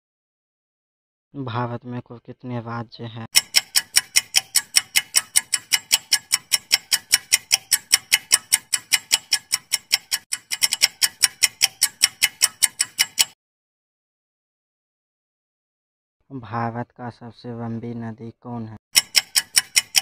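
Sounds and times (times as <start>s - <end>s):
rapid clock ticking: 3.3s - 13.4s, 18.9s - 20.0s.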